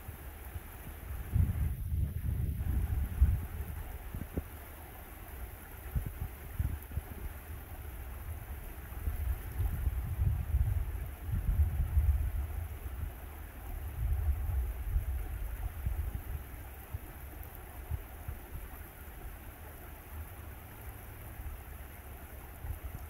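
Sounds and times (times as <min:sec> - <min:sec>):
wind buffeting microphone: 0:00.0 - 0:04.6, 0:05.4 - 0:18.8
stream flowing: 0:00.0 - 0:23.0.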